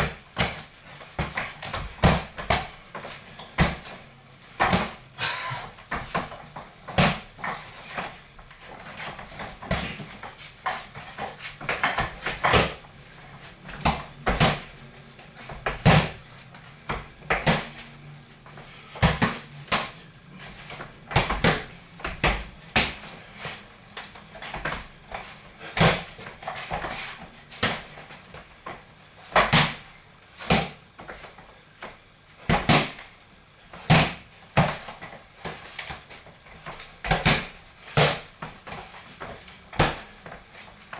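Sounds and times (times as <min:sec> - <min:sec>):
boxing gloves smacking punch mitts: 0:00.0 - 0:04.0, 0:04.6 - 0:05.0, 0:05.8 - 0:17.8, 0:18.9 - 0:31.4, 0:32.4 - 0:33.1, 0:33.7 - 0:40.9.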